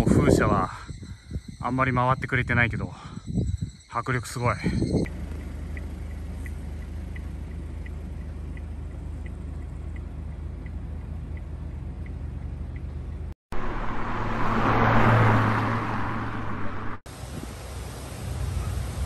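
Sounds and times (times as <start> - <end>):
car engine: 5.0 - 18.6.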